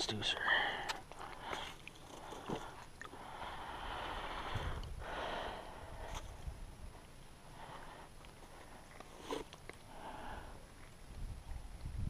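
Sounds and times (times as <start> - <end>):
person breathing heavily: 0.4 - 6.5, 9.8 - 10.7.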